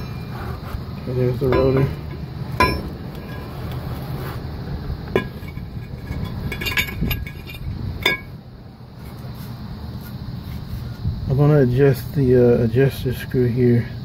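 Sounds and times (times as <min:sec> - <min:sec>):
metal tools clinking: 0:01.0 - 0:03.6, 0:05.1 - 0:08.4.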